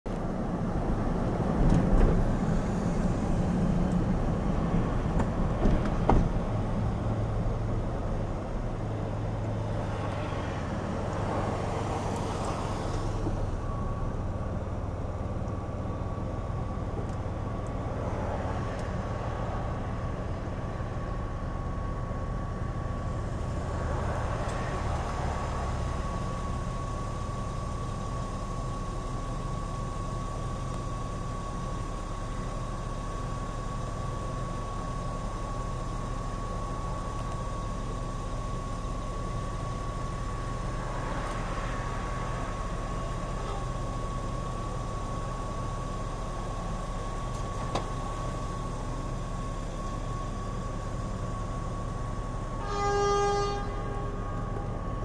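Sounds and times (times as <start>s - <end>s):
car road and engine noise: 0.0s - 55.0s
car engine idle hum: 0.1s - 55.0s
car bumps: 5.1s - 6.5s.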